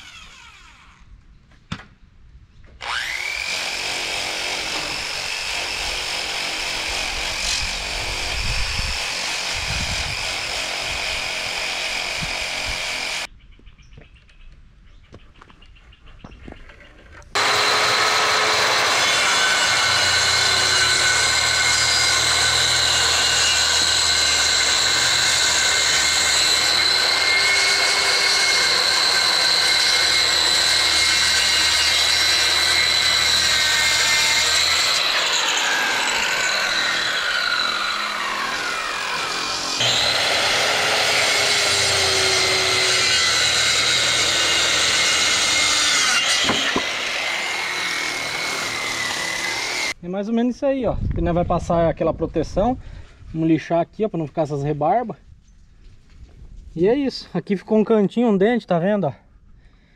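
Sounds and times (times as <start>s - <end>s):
hand-held power tool whining: 0.0s - 1.1s, 2.8s - 13.3s, 17.3s - 50.0s
circular saw cutting board: 17.3s - 50.0s.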